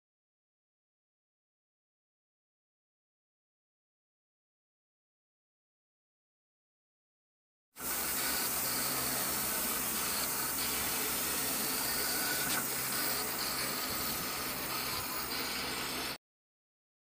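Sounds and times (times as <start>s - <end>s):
cutting plotter hiss and hum: 7.8s - 16.2s
high-pitched whirs: 7.8s - 16.2s.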